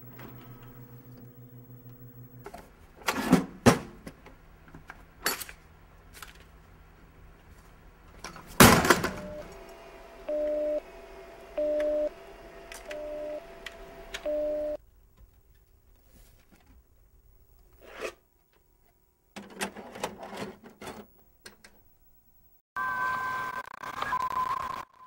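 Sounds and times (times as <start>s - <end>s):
telephone line tone: 9.0s - 9.6s, 10.3s - 10.8s, 11.6s - 12.2s, 12.9s - 13.5s, 14.2s - 14.8s, 22.8s - 25.0s
low hum: 9.1s - 14.8s.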